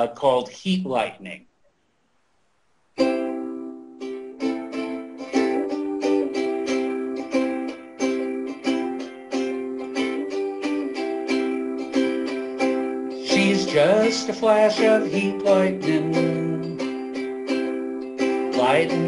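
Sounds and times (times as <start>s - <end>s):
ukulele strumming: 3.0s - 19.0s.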